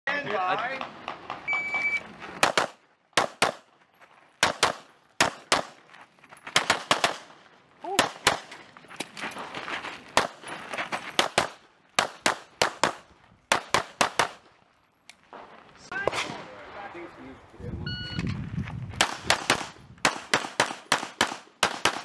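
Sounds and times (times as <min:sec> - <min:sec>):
pistol shots: 0:02.4 - 0:03.7, 0:04.4 - 0:05.8, 0:06.6 - 0:07.3, 0:11.2 - 0:14.4, 0:19.0 - 0:22.0.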